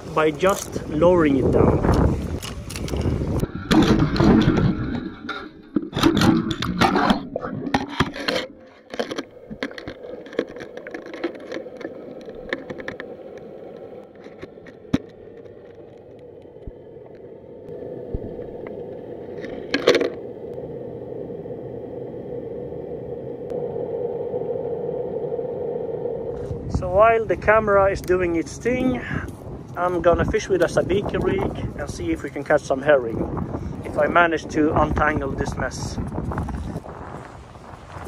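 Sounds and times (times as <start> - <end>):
fishing gear rattling and scraping: 0.4 - 1.0, 1.9 - 16.3, 19.4 - 20.2
low hum: 0.6 - 29.7.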